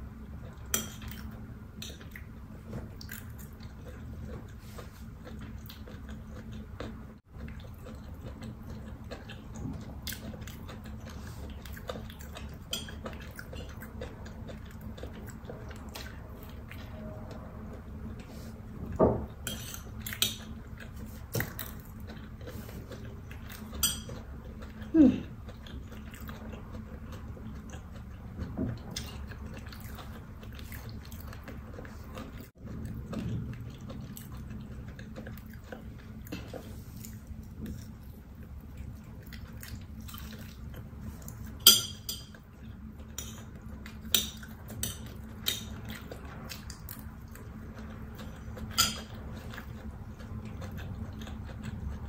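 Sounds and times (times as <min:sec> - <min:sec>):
chewing: 0:00.3 - 0:52.0
spoon clinking against plate: 0:41.6 - 0:42.4.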